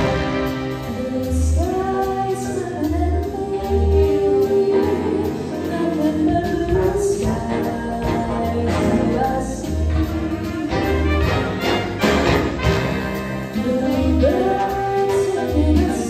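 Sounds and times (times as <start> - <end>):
big band jazz: 0.0 - 16.0
woman singing with vibrato: 0.9 - 11.0, 13.5 - 16.0.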